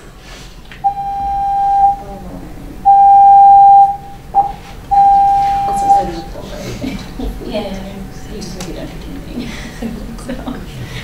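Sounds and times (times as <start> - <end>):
fire alarm pulsing tone: 0.8 - 2.1, 2.8 - 6.4.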